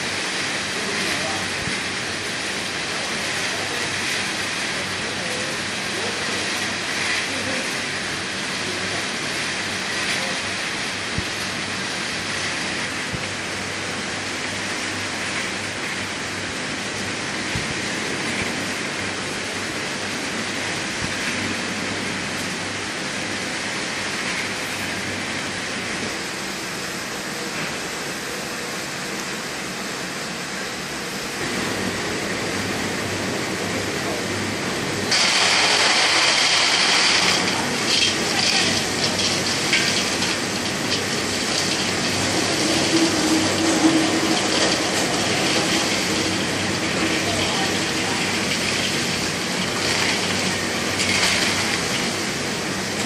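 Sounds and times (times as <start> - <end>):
oil sizzling with frying nuts: 0.0 - 26.6, 34.6 - 53.0
steady electrical hum: 0.0 - 53.0
nuts pouring into steel bowl: 35.1 - 52.2.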